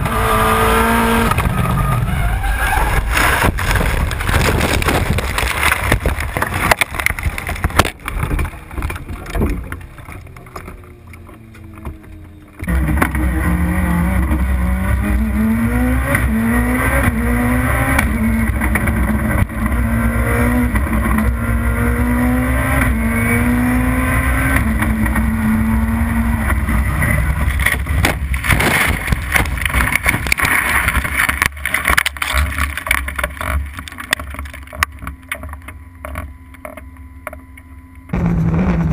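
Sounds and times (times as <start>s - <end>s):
race car engine revving: 0.0s - 32.0s, 38.1s - 38.9s
car crashing with heavy impacts: 2.8s - 9.6s, 27.4s - 33.2s.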